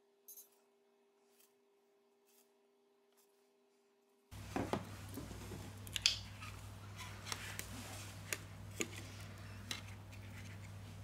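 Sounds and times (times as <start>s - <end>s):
steady low hum: 4.3s - 11.0s.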